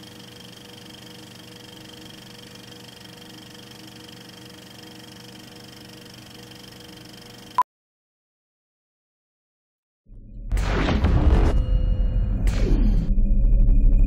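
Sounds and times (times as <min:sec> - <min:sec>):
film projector whirring: 0:00.0 - 0:07.6.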